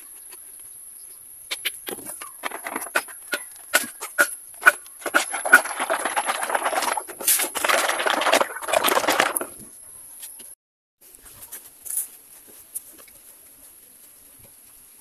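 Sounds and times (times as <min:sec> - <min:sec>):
plastic jugs clicking and knocking: 0:01.9 - 0:09.7
plastic rustling: 0:05.1 - 0:09.7.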